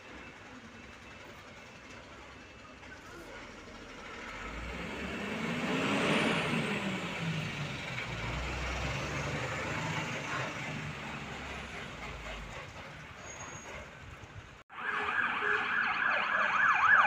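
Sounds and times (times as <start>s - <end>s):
diesel engine idling: 0.0s - 5.5s.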